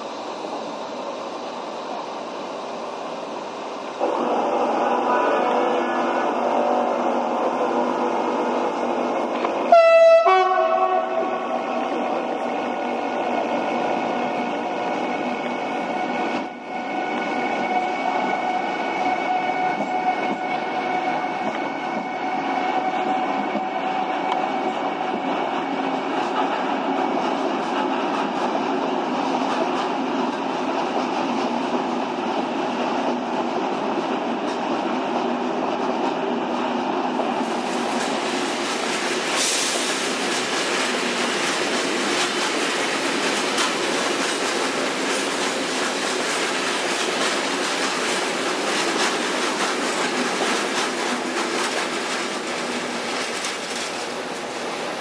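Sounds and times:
train wheels clattering on rails: 12.1 - 55.0.

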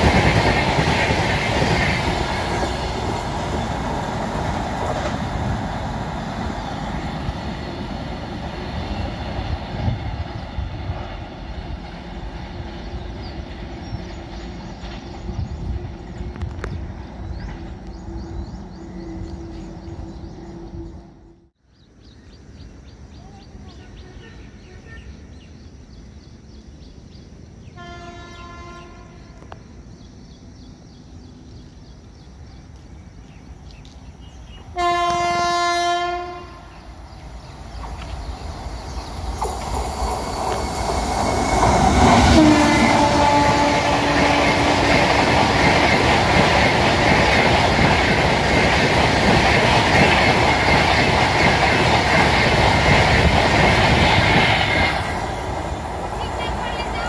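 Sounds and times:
train wheel clatter: 0.0 - 18.0, 37.7 - 57.0
locomotive rushing past: 0.0 - 21.5, 33.0 - 57.0
train rumble: 0.0 - 21.6, 22.3 - 57.0
train horn blasts: 27.7 - 29.4, 34.8 - 36.8, 42.2 - 45.1.

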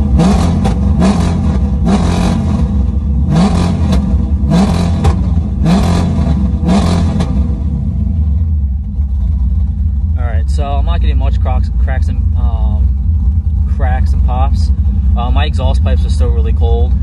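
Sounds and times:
engine revving against limiter: 0.0 - 8.5.

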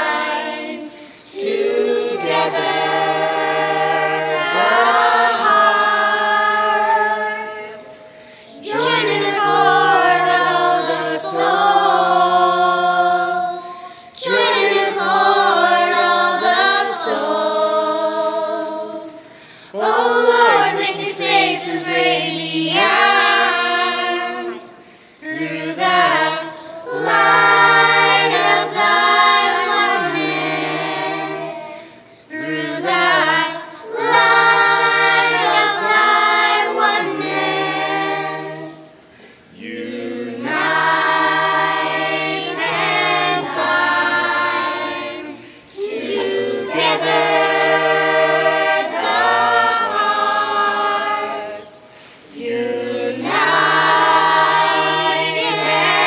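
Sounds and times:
children's choir singing: 0.0 - 56.0.

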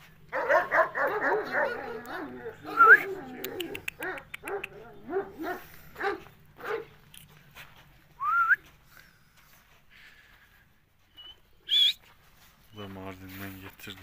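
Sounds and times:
large dog barking: 0.3 - 7.0
short rising whistle: 11.2 - 12.0.

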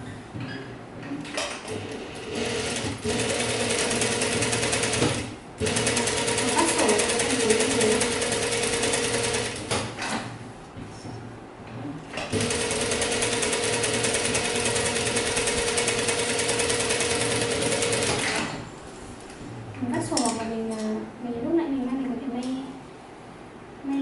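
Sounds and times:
sewing machine stitching: 12.3 - 18.6.

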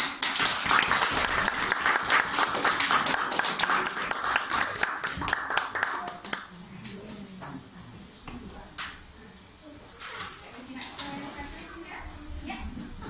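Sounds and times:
audience clapping: 0.0 - 7.0.

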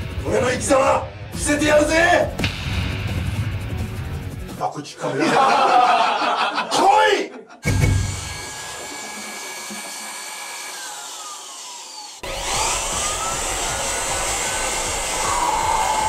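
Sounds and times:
leaf blower running: 7.7 - 16.0.

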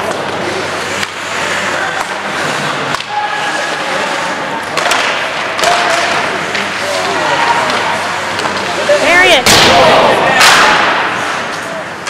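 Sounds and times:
skates scraping on ice: 0.0 - 9.5
sticks and puck clacking: 0.0 - 9.7, 10.3 - 12.0.

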